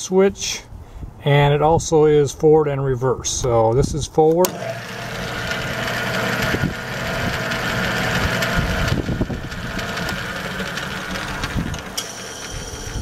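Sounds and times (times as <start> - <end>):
lathe motor hum and gear whir: 4.5 - 13.0.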